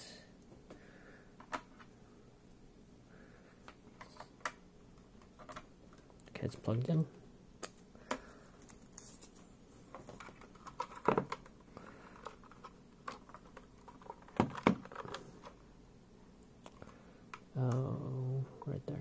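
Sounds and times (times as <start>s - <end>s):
keyboard clicks and knocks: 12.2s - 15.5s.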